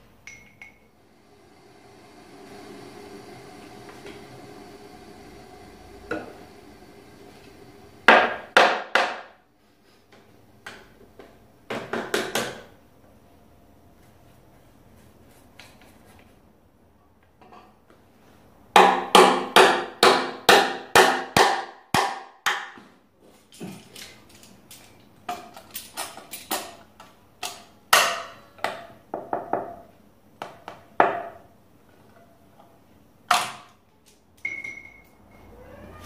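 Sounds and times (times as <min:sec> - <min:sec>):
hammer striking wood: 0:08.1 - 0:09.4, 0:18.8 - 0:22.8.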